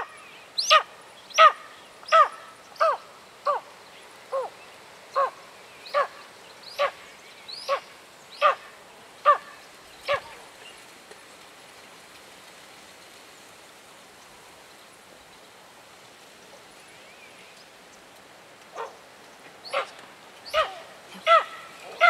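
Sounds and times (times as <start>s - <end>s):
eagle calling: 0.0s - 3.7s, 4.3s - 7.0s, 7.6s - 10.4s, 19.6s - 22.0s.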